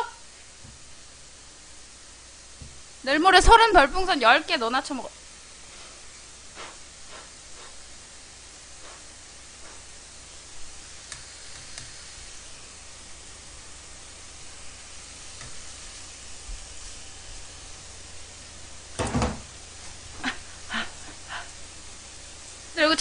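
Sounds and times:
meat sizzling in a frying pan: 5.2s - 20.6s
loud thump: 19.0s - 19.5s.

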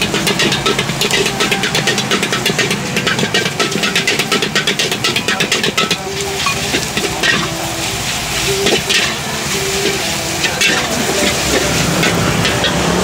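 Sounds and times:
food sizzling in wok: 0.0s - 13.0s
metal ladle clinking and scraping: 0.0s - 13.0s.

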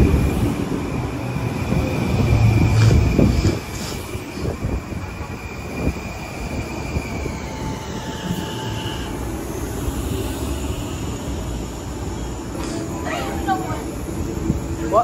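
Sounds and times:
train wheels rumbling on rail: 0.0s - 15.0s
faint high squealing: 6.8s - 11.3s.

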